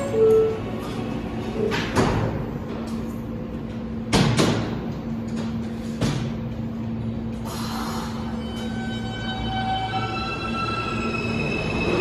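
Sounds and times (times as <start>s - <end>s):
subway train hum: 0.0s - 12.0s
train hiss: 7.4s - 8.4s.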